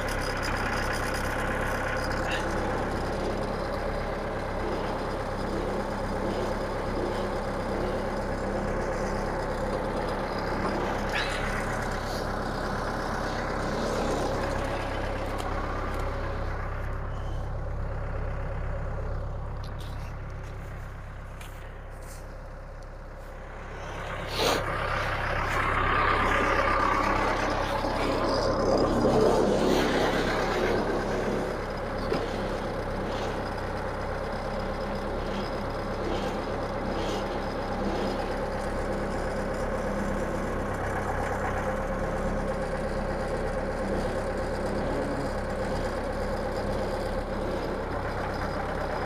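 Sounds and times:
tractor engine running: 0.0 - 49.0.

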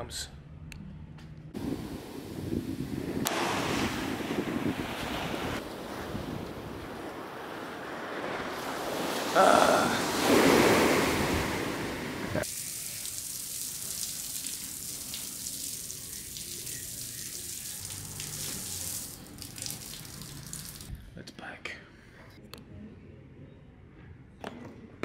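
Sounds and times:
wind on the microphone: 1.6 - 7.7
ocean waves breaking: 1.6 - 12.5.

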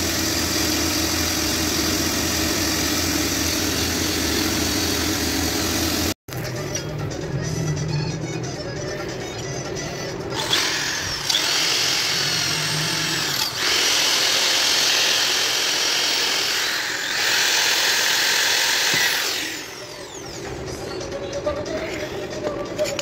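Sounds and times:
cordless drill whining into metal: 10.4 - 20.4.

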